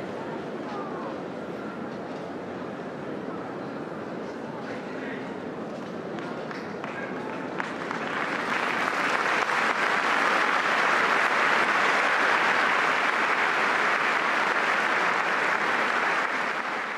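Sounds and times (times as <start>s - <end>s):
large crowd applauding: 6.5s - 16.9s.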